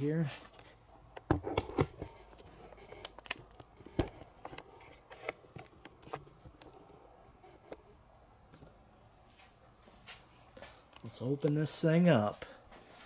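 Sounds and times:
camera handling clicks and knocks: 1.1s - 6.7s.

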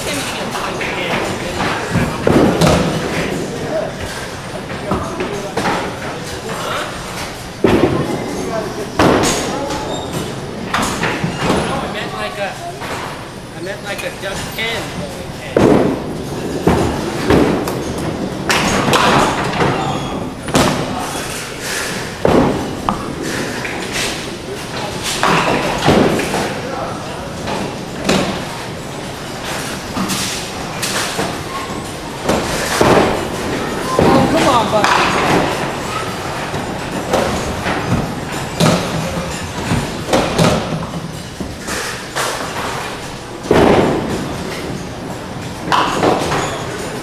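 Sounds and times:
bowling balls rolling on wooden lanes: 0.0s - 6.4s, 14.4s - 47.0s
balls crashing into pins: 0.7s - 3.6s, 15.5s - 47.0s.

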